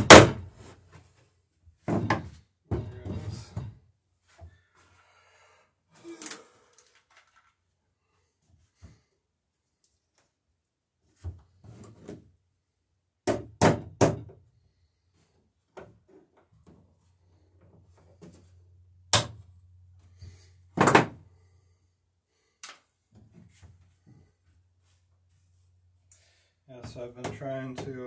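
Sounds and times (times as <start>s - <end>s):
hammer striking wooden planks: 0.0s - 0.4s, 13.2s - 14.4s.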